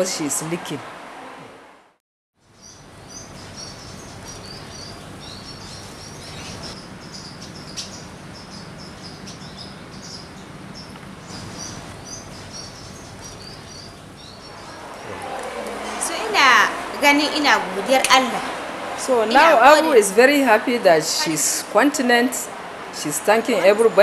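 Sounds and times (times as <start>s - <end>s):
low background noise: 2.5s - 24.0s
small birds chirping: 2.6s - 15.1s.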